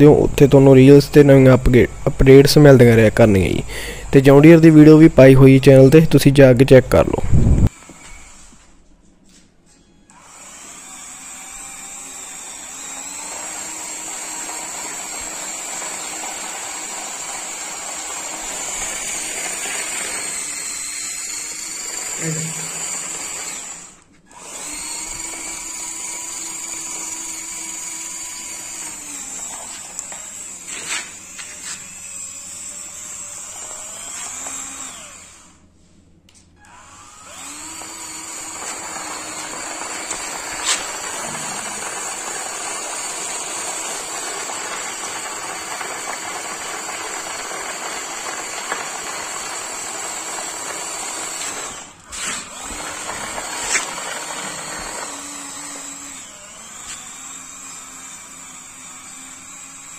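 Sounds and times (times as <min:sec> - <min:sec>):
small electric motor whining: 0:07.4 - 0:08.6, 0:10.0 - 0:35.6, 0:36.6 - 0:59.9
blade dragging through soil: 0:38.6 - 0:42.5, 0:52.1 - 0:54.9.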